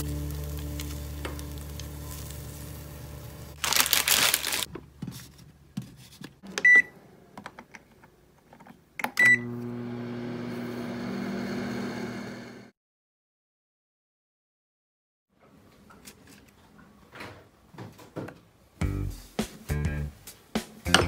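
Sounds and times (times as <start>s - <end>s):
microwave humming with fan: 9.2s - 12.7s.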